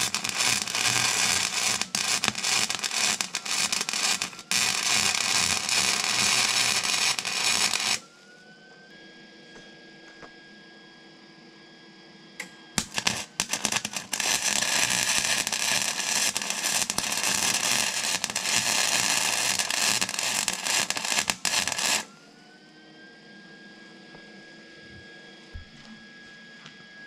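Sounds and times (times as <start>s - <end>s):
welder arc crackling: 0.0s - 8.0s, 12.8s - 22.1s.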